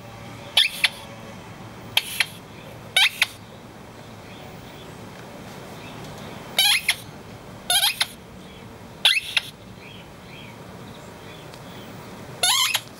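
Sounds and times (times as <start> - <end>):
rubber toy squeaking: 0.6 - 1.0, 2.0 - 2.4, 3.0 - 3.4, 6.6 - 7.1, 7.7 - 8.2, 9.0 - 9.6, 12.4 - 12.9.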